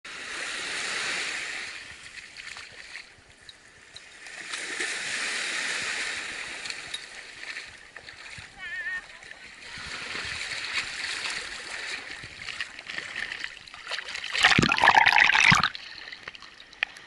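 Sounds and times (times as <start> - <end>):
small waves washing on shore: 0.1 - 17.0.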